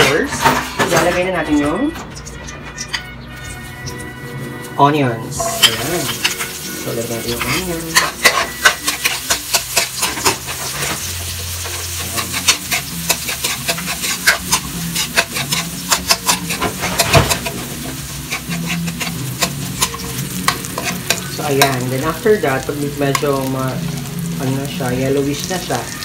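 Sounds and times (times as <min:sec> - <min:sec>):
metal spoon scraping a wok: 0:00.0 - 0:22.2
onions sizzling in hot oil: 0:05.2 - 0:26.0.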